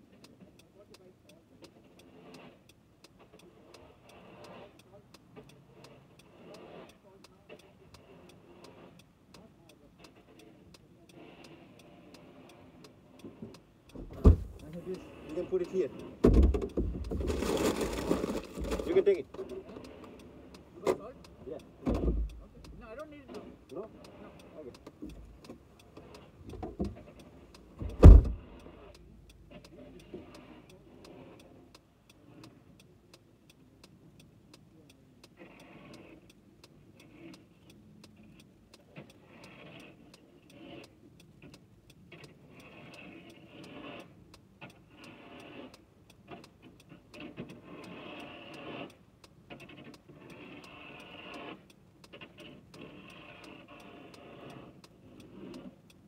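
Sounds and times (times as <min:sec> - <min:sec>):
snow shovel scraping snow: 0:03.6 - 0:04.8, 0:17.1 - 0:20.5, 0:47.2 - 0:49.0, 0:49.6 - 0:51.6, 0:52.4 - 0:55.8
car door shutting: 0:14.0 - 0:14.8, 0:16.2 - 0:18.9, 0:21.8 - 0:22.4, 0:27.8 - 0:28.6.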